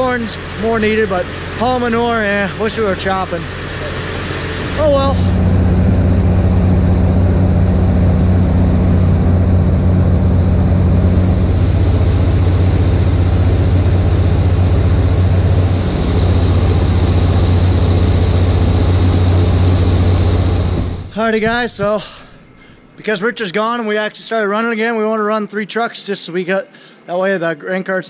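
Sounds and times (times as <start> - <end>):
tractor diesel engine running: 0.0 - 21.2.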